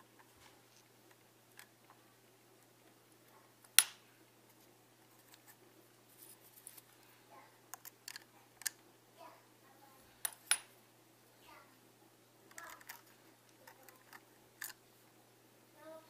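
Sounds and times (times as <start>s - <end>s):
screwdrivers clicking on plastic: 12.5s - 14.8s.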